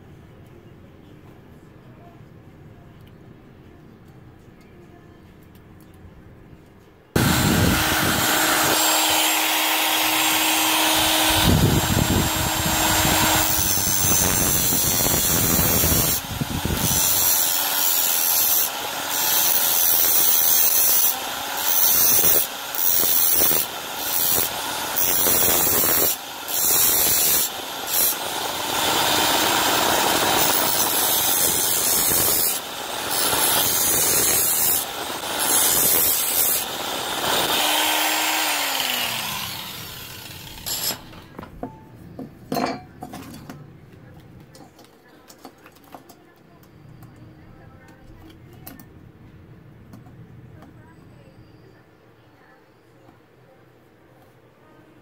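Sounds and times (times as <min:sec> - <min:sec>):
angle grinder cutting metal: 0:07.2 - 0:41.3.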